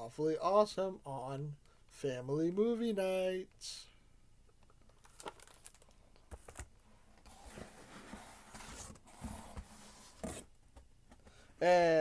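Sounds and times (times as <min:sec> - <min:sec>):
packing material rustling: 0:04.9 - 0:06.7.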